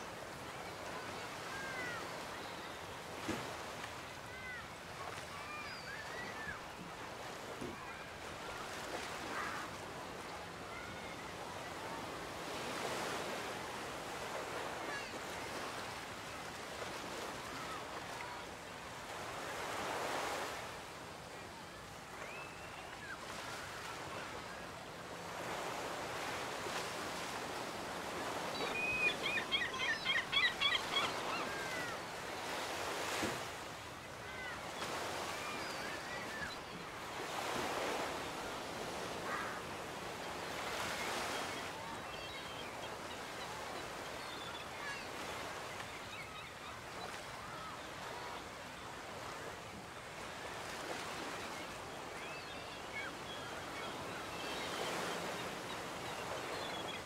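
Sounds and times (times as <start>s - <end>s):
waves washing onto beach: 0.0s - 28.8s, 31.1s - 42.4s.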